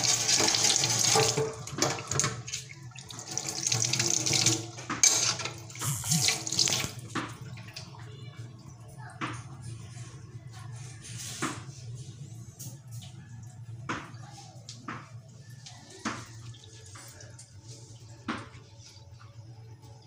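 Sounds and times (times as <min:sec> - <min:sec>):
faucet running into sink: 0:00.0 - 0:08.0
water draining: 0:00.0 - 0:08.8.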